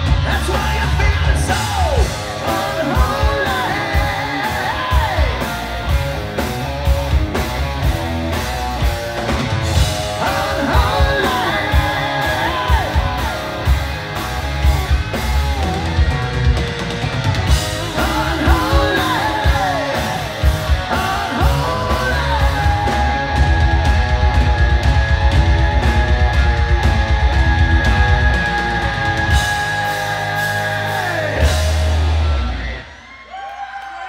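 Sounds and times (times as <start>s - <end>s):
sliding melodic guitar line: 0.0s - 32.8s
live hard rock band: 0.0s - 33.4s.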